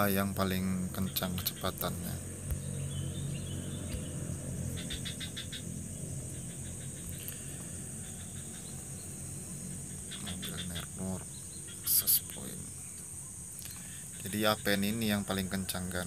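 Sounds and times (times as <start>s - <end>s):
low hum: 0.0s - 15.9s
quick evenly spaced chirps: 0.0s - 16.0s
steady high-pitched whine: 0.0s - 16.0s.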